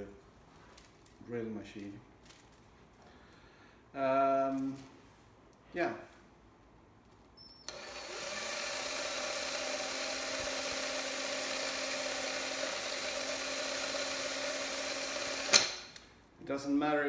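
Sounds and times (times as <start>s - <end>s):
electric drill whirring: 7.6s - 16.0s.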